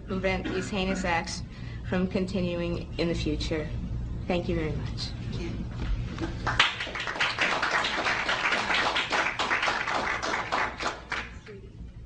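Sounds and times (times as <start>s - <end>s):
audience applauding: 6.2s - 11.5s.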